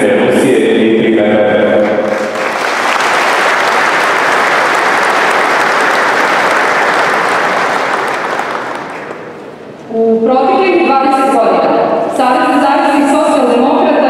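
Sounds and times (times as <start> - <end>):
audience applauding: 1.8 - 9.6.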